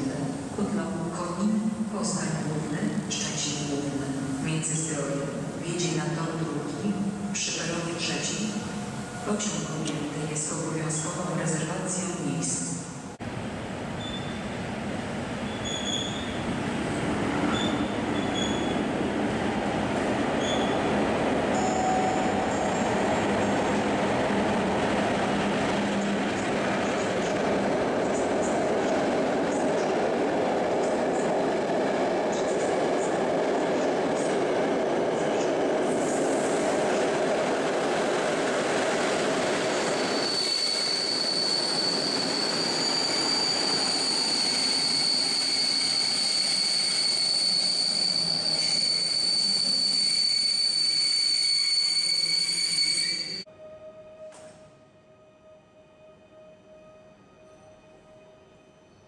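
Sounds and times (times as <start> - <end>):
train rumbling over rails: 0.0 - 50.0
high brake squeal: 14.0 - 14.4, 15.4 - 16.4, 17.5 - 18.8, 20.4 - 20.8, 39.8 - 53.5.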